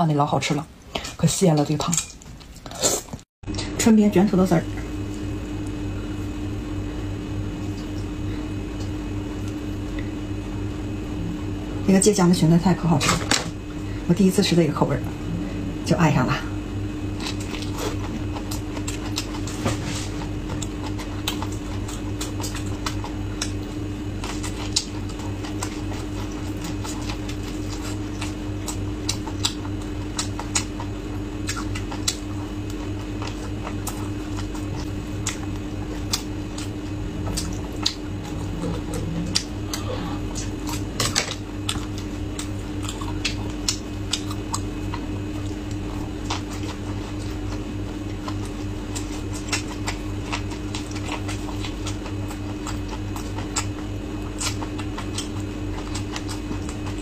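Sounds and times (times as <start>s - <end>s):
steady low hum: 0.0s - 57.0s
chewing and biting flatbread: 17.0s - 57.0s.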